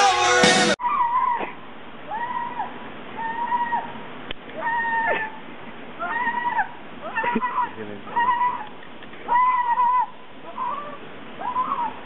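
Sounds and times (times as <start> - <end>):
rock music: 0.0 - 0.8.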